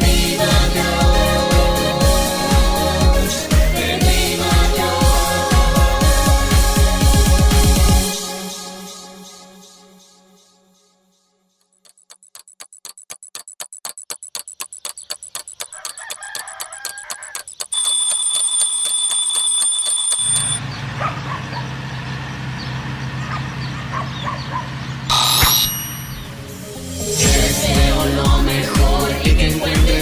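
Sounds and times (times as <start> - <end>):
alarm clock ticking: 11.6 - 20.6
alarm clock bells ringing: 12.3 - 20.6
birds chirping: 14.0 - 17.7, 20.7 - 26.5.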